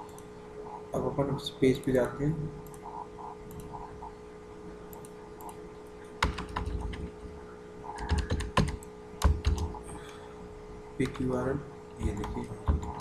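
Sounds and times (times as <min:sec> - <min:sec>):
faint steady hum: 0:00.0 - 0:13.0
typing on keyboard: 0:06.2 - 0:07.1, 0:07.9 - 0:09.8, 0:12.0 - 0:13.0.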